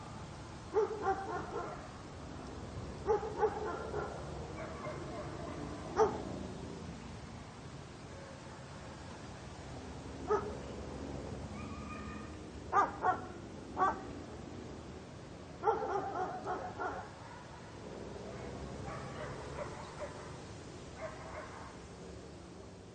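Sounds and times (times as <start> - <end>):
outdoor background noise: 0.0 - 22.9
dog barking: 0.7 - 1.9, 3.0 - 6.2, 10.3 - 10.5, 11.6 - 14.1, 15.6 - 20.4, 21.0 - 21.8.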